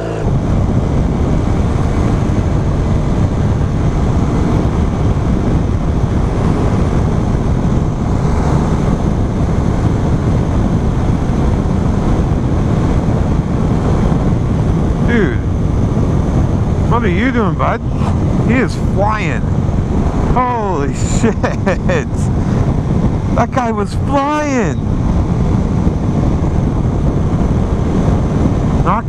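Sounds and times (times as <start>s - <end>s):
motorcycle engine running: 0.0s - 20.8s
wind rushing over microphone: 0.0s - 29.0s.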